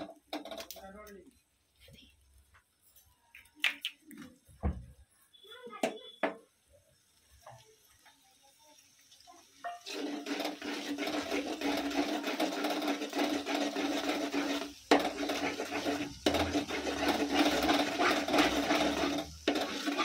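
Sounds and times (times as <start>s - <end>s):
metal spatula scraping a wok: 9.6s - 20.0s.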